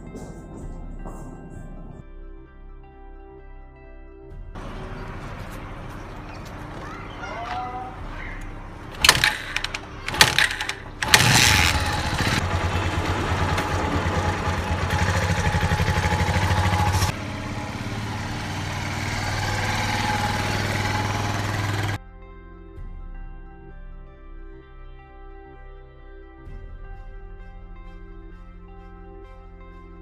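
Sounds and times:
engine running with rhythmic chug: 0.0 - 2.0, 4.6 - 22.0
soft music: 0.0 - 11.2, 22.0 - 30.0.

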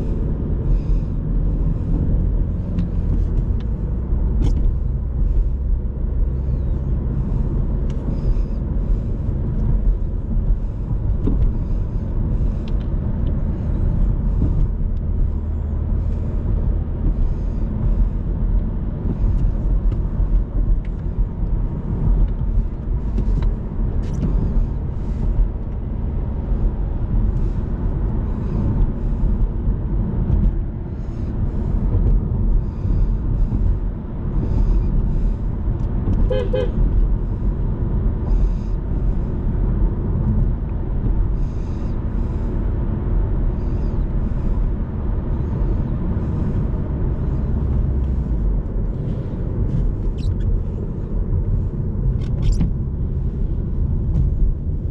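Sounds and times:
car engine running: 0.0 - 54.9
tyres rumbling over rough road: 0.0 - 54.9
car horn toot: 36.2 - 36.8.

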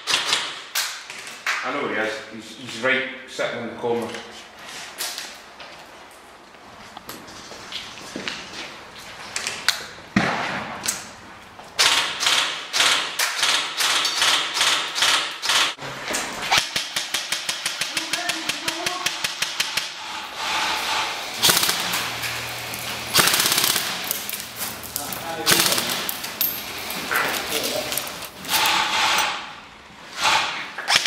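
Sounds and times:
airsoft rifles firing: 21.4 - 26.6.

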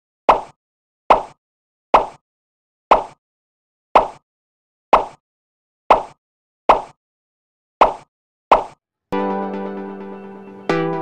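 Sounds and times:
pop sound effect: 0.3 - 1.4, 2.9 - 3.2, 4.0 - 4.2, 5.0 - 5.2.

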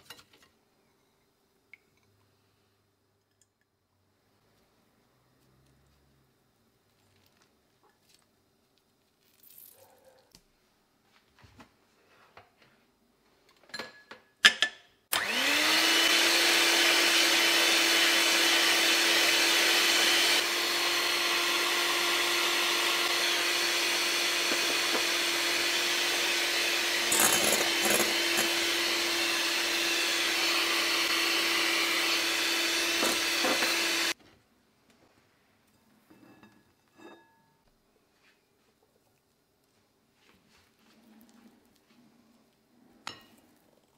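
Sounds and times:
electric hand mixer whirring: 15.1 - 34.2.

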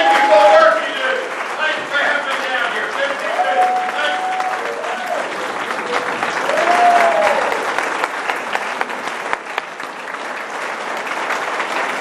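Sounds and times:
audience cheering: 0.0 - 2.1, 2.7 - 8.1
audience applauding: 0.0 - 12.0.

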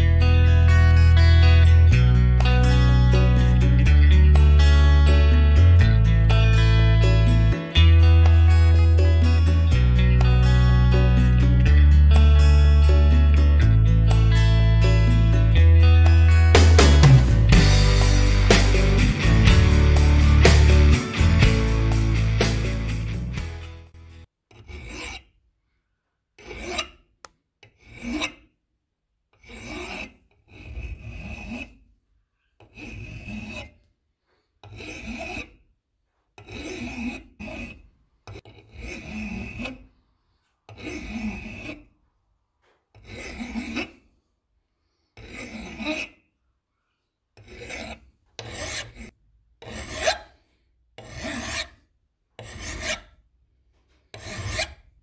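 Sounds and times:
hand file rasping on metal: 16.6 - 23.6, 24.5 - 25.4, 26.4 - 28.5, 29.3 - 42.0, 42.6 - 44.2, 45.0 - 46.2, 47.4 - 55.0.

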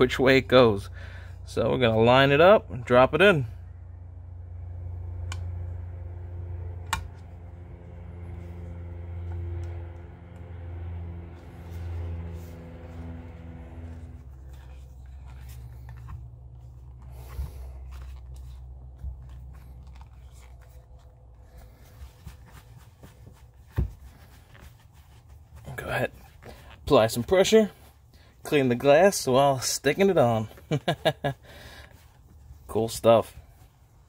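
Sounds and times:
low engine-like hum: 0.0 - 34.0.

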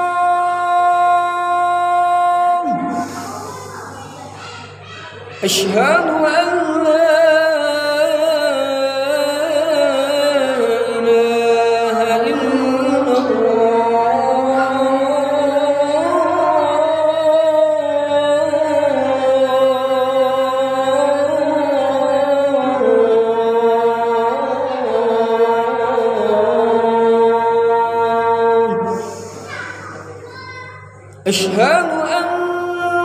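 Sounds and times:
man chanting call to prayer: 0.0 - 3.5, 5.3 - 29.6, 31.2 - 33.0.

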